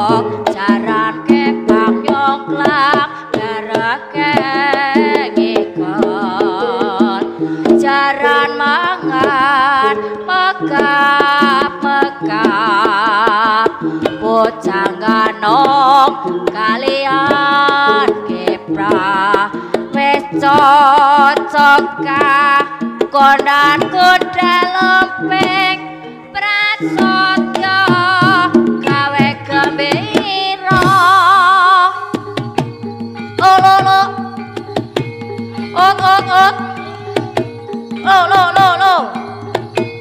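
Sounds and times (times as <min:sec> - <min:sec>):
gamelan music: 0:00.0 - 0:40.0
hand drum playing: 0:00.0 - 0:40.0
high wavering melody: 0:31.8 - 0:40.0.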